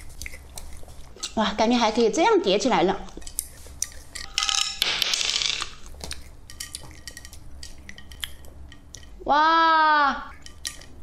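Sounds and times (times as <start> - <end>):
candies clicking on a plate: 3.1 - 9.2, 10.3 - 11.0.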